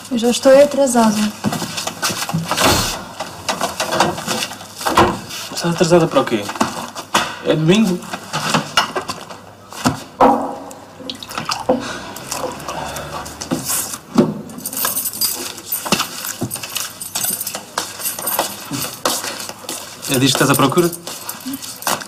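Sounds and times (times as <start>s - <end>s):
knocks and clinks of handled objects: 10.2s - 22.0s.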